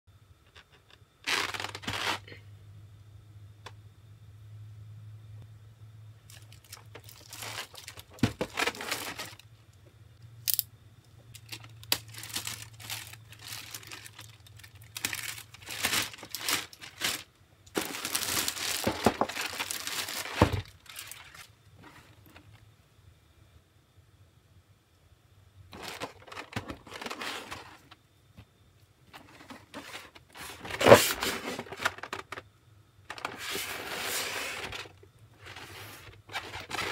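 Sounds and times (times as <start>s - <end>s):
plastic shrink wrap crinkling: 1.2s - 2.4s, 6.3s - 9.5s, 11.4s - 21.5s, 25.7s - 28.0s, 29.2s - 32.4s.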